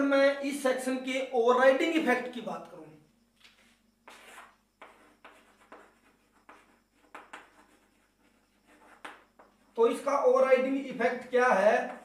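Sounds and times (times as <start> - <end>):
chalk writing on a chalkboard: 4.0 - 9.6.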